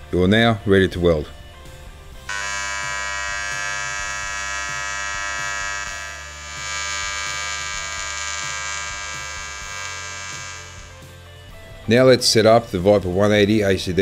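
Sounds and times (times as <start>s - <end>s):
welding arc buzzing: 2.3s - 11.1s.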